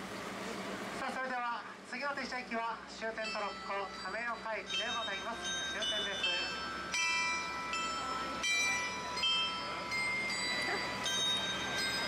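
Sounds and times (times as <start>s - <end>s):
chiming bell-like music: 3.2s - 12.0s
trolley train running: 3.2s - 12.0s.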